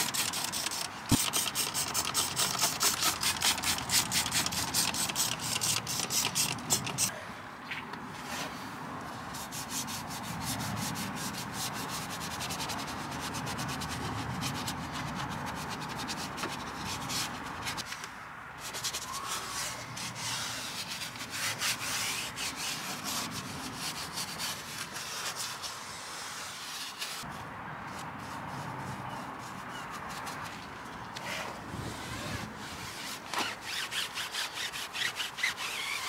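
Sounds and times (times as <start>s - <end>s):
brush scrubbing wet plastic: 0.0s - 7.1s.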